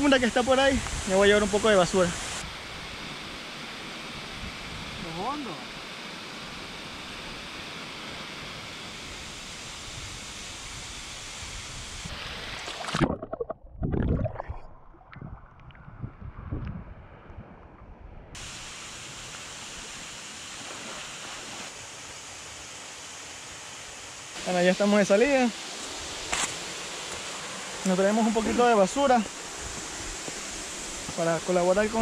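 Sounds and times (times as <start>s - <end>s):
water splashing and sloshing: 12.4s - 16.1s, 20.5s - 21.8s
waterfall rushing: 24.4s - 32.0s.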